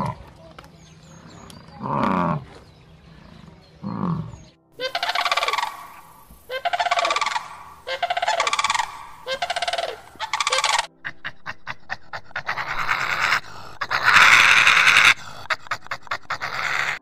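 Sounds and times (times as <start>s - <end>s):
heron calling: 0.8s - 17.0s
bison grunting: 1.1s - 4.6s, 8.4s - 17.0s.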